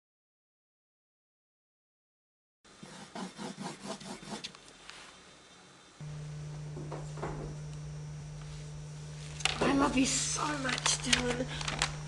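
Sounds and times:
steady low hum: 5.4s - 12.0s.

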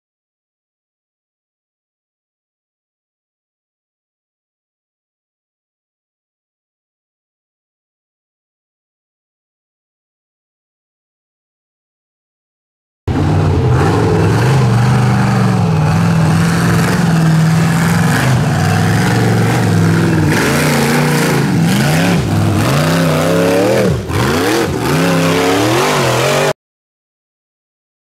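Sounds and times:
buggy engine revving under load: 13.1s - 26.6s.

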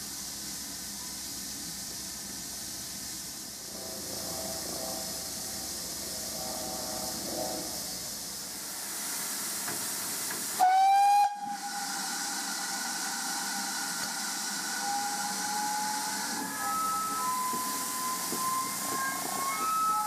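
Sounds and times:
steam hissing: 0.0s - 20.0s
steam locomotive whistle blast: 3.6s - 8.2s, 10.6s - 20.0s.

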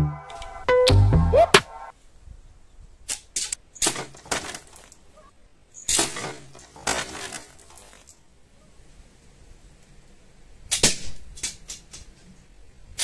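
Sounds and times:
slingshot cracks: 10.7s - 12.1s.

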